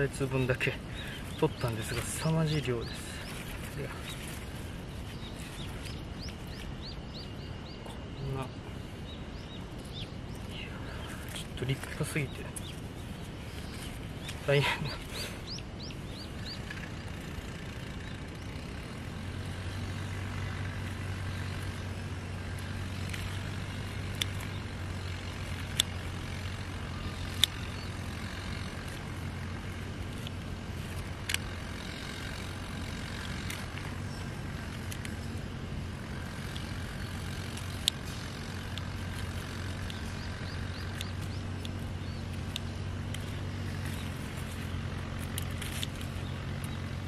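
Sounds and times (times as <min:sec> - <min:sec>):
distant engine humming: 0:00.0 - 0:47.0
pruning shears snipping: 0:19.7 - 0:47.0.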